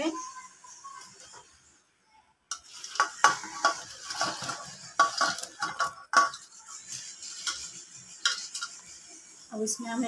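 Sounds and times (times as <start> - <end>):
steel plate clinking on pot: 2.5 - 6.7, 7.3 - 8.9.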